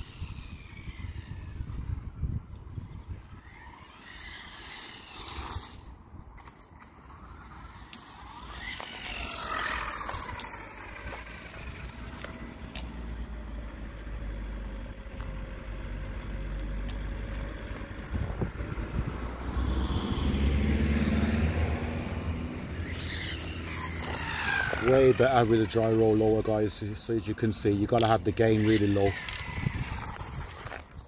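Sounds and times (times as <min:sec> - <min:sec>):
electric toy car motor whine: 0:00.0 - 0:13.3, 0:18.1 - 0:31.0
tyres on rough surface: 0:03.1 - 0:13.4, 0:22.8 - 0:31.0.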